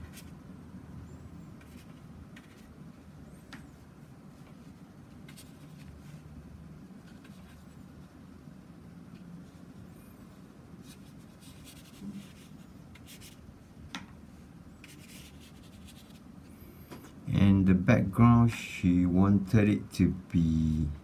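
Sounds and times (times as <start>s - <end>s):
low steady hum: 0.0s - 21.0s
paintbrush strokes on paper: 9.2s - 13.4s, 14.8s - 16.2s.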